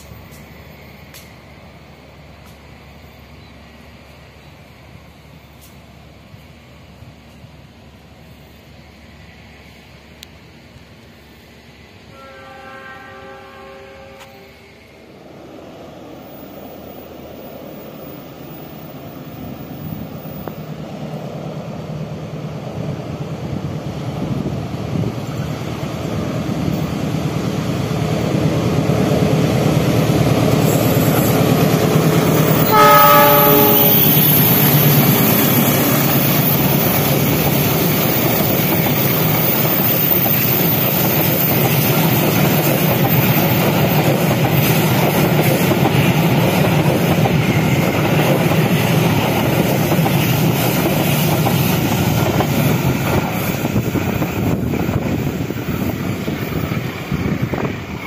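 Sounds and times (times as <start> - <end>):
locomotive horn: 12.1 - 14.6, 32.6 - 34.2
train wheels clattering on rails: 24.2 - 58.0.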